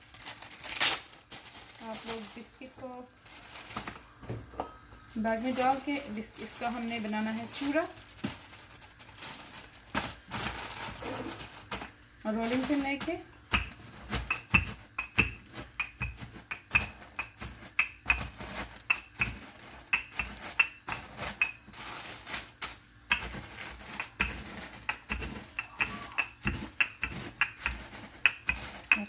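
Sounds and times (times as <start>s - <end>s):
biscuits crushed by rolling pin: 9.2s - 29.0s.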